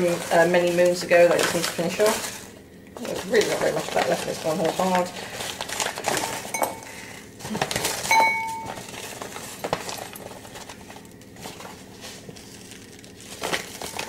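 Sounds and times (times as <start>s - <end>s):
clinks against glass bowl: 6.5s - 6.9s, 8.1s - 8.7s
bag rustling: 7.4s - 14.0s.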